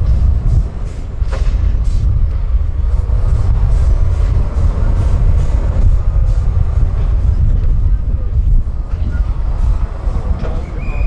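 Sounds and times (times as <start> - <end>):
truck diesel engine rumbling: 0.0 - 11.0.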